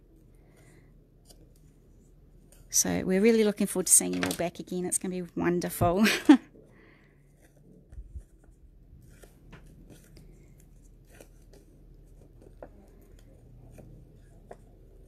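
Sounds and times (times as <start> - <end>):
paper and card rustling: 3.8 - 5.0, 7.2 - 15.0.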